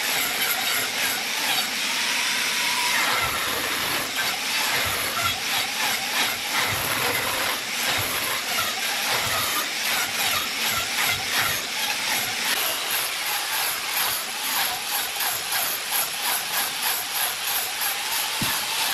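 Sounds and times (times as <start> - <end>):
angle grinder grinding wood: 0.0 - 18.9.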